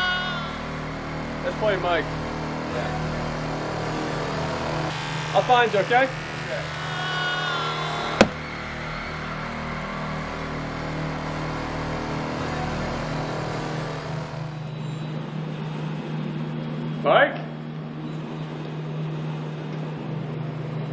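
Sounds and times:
low droning hum: 0:00.0 - 0:20.9.

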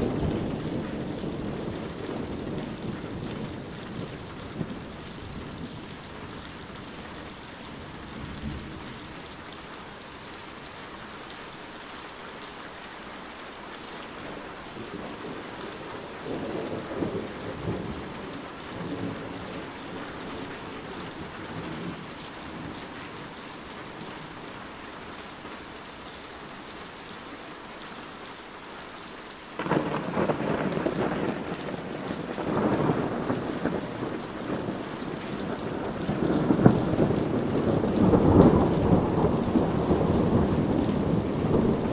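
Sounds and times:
thunder rumbling: 0:00.0 - 0:05.6, 0:29.6 - 0:41.9
heavy rain falling: 0:00.0 - 0:41.9.

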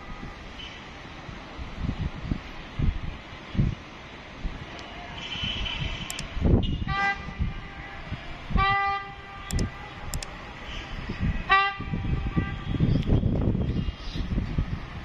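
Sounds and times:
train horn toots: 0:05.2 - 0:07.8, 0:08.6 - 0:09.6, 0:11.4 - 0:12.9.

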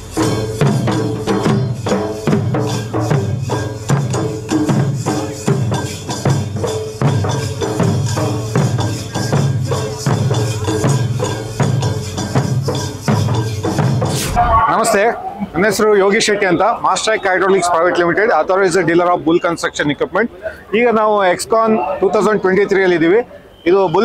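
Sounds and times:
jingling metal percussion: 0:00.0 - 0:16.3.

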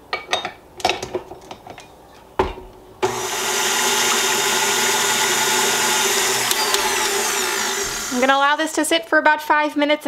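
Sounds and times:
stand mixer motor whirring: 0:03.0 - 0:08.4.

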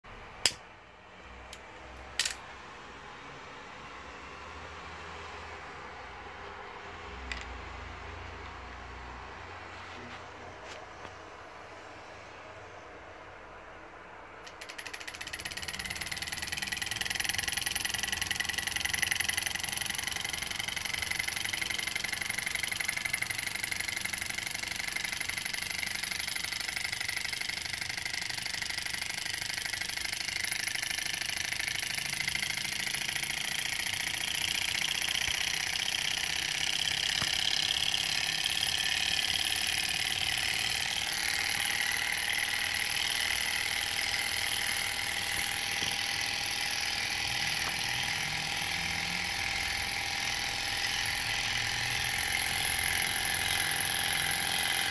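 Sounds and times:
small engine running fast: 0:14.5 - 0:54.9.

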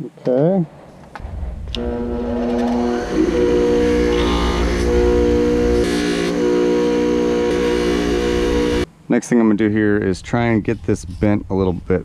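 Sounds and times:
bench grinder running: 0:01.7 - 0:08.9.

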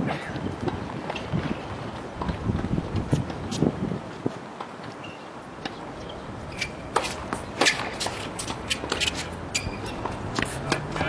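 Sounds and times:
footsteps and shoe scuffs: 0:06.0 - 0:11.0.

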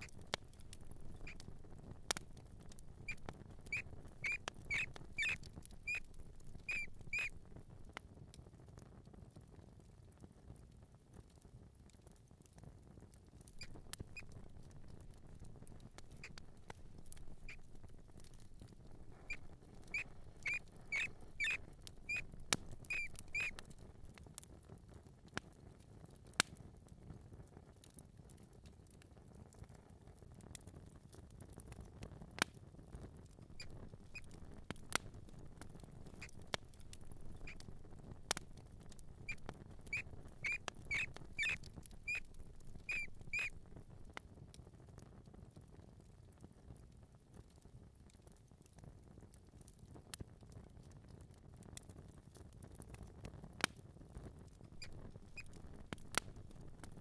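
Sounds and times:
mouse squeaking: 0:00.0 - 0:07.4, 0:13.5 - 0:15.1, 0:16.0 - 0:23.8, 0:33.6 - 0:43.6, 0:54.8 - 0:56.2
light pattering: 0:00.0 - 0:07.9, 0:13.4 - 0:24.2, 0:33.4 - 0:44.2, 0:54.6 - 0:57.0
faint low rumble: 0:00.0 - 0:08.0, 0:13.4 - 0:24.3, 0:33.2 - 0:44.2.

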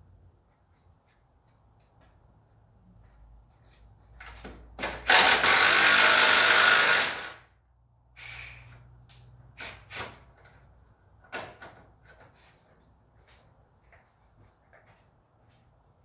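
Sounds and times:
power tool running: 0:05.0 - 0:07.5.

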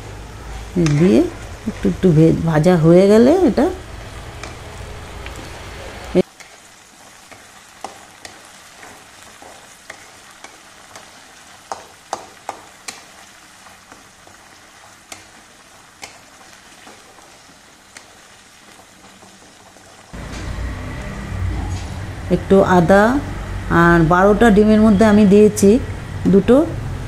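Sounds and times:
paste sizzling in oil: 0:03.0 - 0:20.2.

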